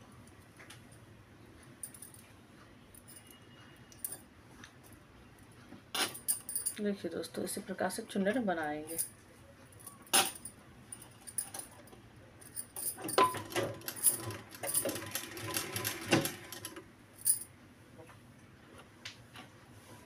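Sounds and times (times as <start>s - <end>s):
sewing machine stitching: 13.2s - 16.8s.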